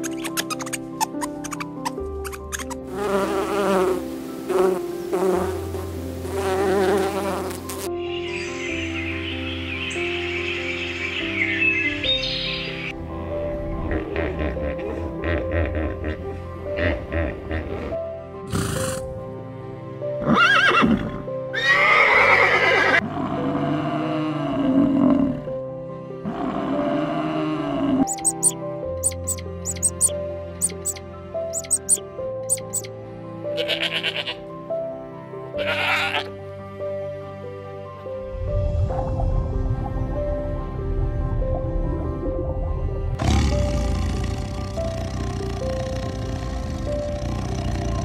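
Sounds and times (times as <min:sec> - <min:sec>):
background music: 0:00.0 - 0:48.0
flying insects buzzing: 0:00.1 - 0:12.9, 0:28.0 - 0:32.9, 0:43.2 - 0:48.0
horse whinnying: 0:20.2 - 0:23.0
background music with low bass: 0:27.6 - 0:48.0.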